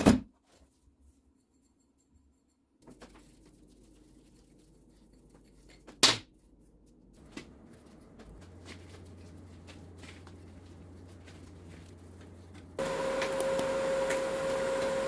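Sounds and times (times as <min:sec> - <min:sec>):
low steady hum: 0:06.4 - 0:15.0.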